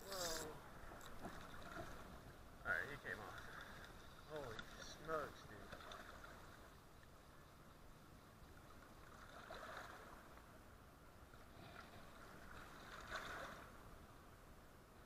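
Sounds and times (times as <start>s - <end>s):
churning river water: 0.0s - 15.0s.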